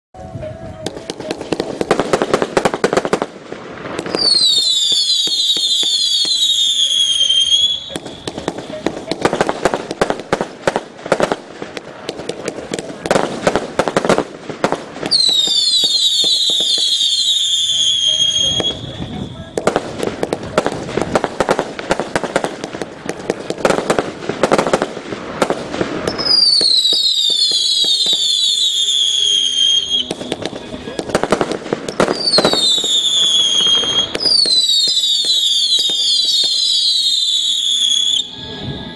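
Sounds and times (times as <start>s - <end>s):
firecracker cracks: 0.8s - 38.4s
firework bangs: 0.8s - 38.9s
shrill firework whistles: 4.0s - 8.5s, 15.1s - 19.8s, 26.0s - 30.6s, 31.9s - 38.9s.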